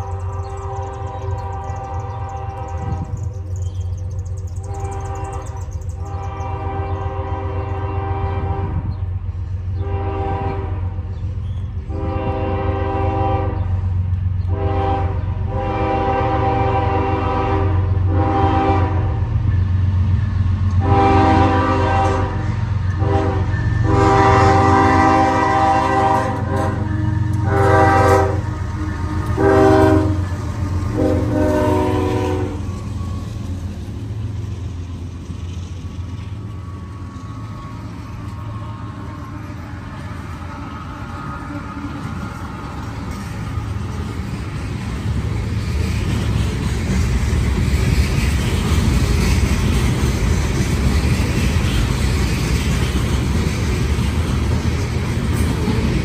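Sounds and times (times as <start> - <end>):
locomotive air horn blasts: 0.0 - 3.2, 4.6 - 8.9, 9.7 - 11.1, 11.8 - 13.8, 14.5 - 19.3, 20.8 - 32.8
locomotive engines rumbling: 0.0 - 56.0.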